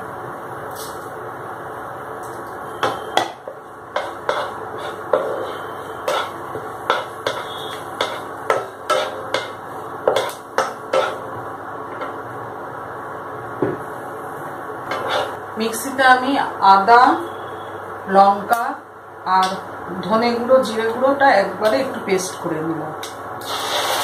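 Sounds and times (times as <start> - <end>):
spices frying in oil: 2.2 - 11.4.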